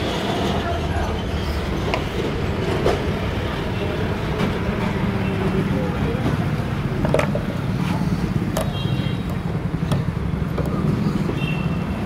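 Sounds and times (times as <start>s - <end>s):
low rumble of road traffic: 0.0s - 12.0s.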